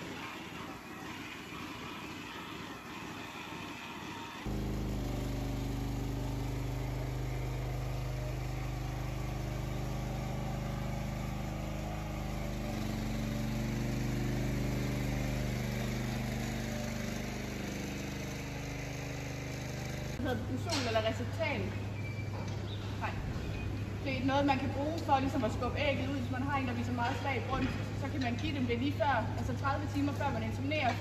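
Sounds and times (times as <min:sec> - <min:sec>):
feeding cart motor running: 0:04.3 - 0:20.3.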